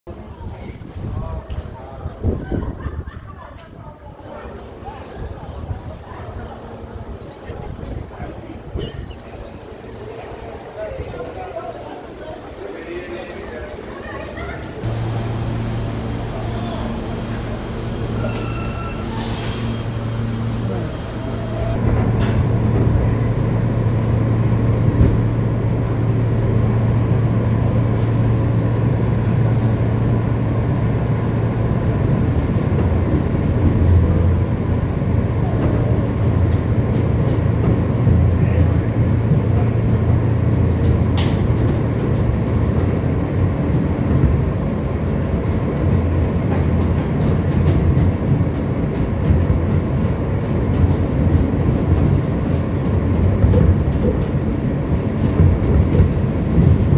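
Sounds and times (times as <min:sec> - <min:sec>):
subway train humming: 0:00.1 - 0:56.9.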